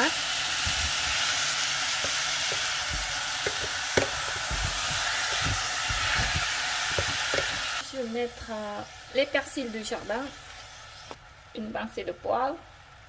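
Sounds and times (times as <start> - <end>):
food sizzling in a pan: 0.0 - 13.0
utensil stirring and knocking pan: 0.4 - 7.8.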